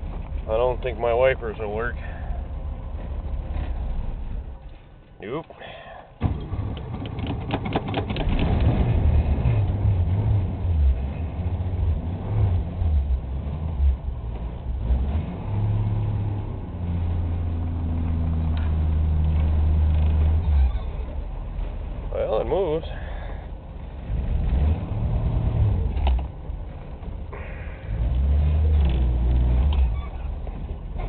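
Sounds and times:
car engine revving: 7.9 - 21.2, 23.8 - 31.0.

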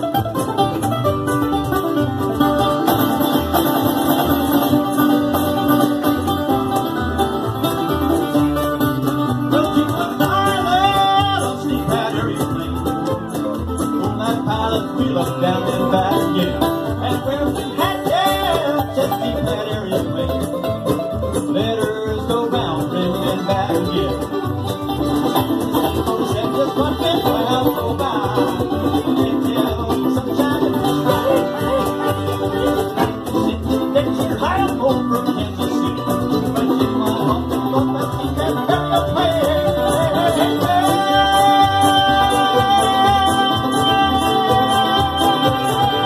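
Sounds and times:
acoustic guitar: 0.0 - 46.0
banjo: 0.0 - 46.0
mandolin: 0.0 - 46.0
man singing: 8.2 - 46.0.

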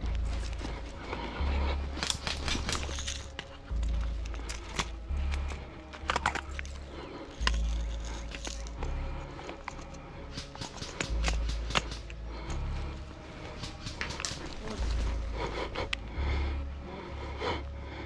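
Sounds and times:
heavy breathing: 0.0 - 18.0
sharp clicks and snaps: 2.0 - 12.6.

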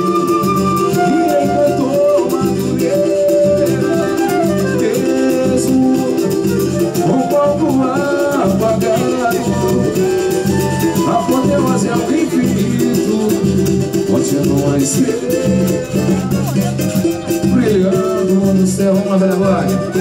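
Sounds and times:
flute melody: 0.0 - 12.8, 19.2 - 20.0
steady drum beat: 0.0 - 20.0
strummed guitars: 0.0 - 20.0.

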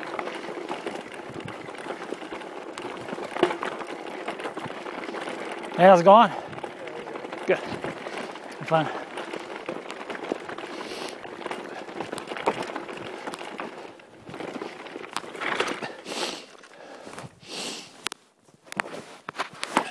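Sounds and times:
bike rattling knocks: 0.0 - 13.7
bike tyres crunching over gravel: 0.0 - 19.9.

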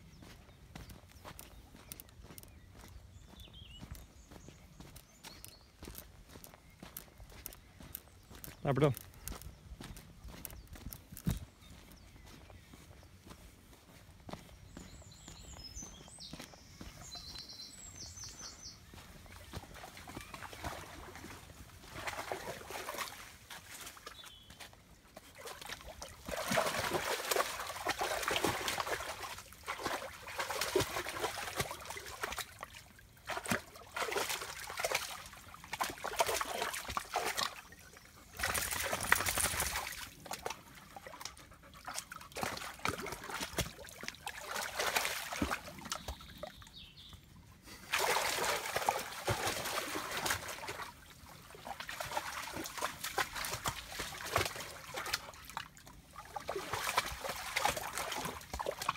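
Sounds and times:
stream water trickling: 0.0 - 58.9
dog splashing through water: 19.2 - 46.5, 47.8 - 58.9.

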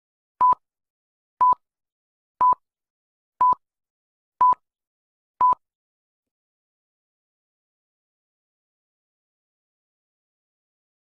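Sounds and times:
beep clicks: 0.4 - 0.6, 1.4 - 1.6, 3.4 - 3.6, 4.4 - 4.6, 5.4 - 5.6.

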